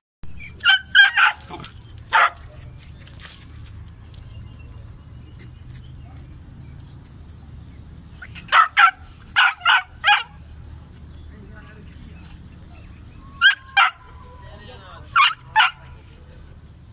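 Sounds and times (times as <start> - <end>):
puppy barking: 0.3 - 2.5, 8.4 - 10.5, 12.7 - 16.9.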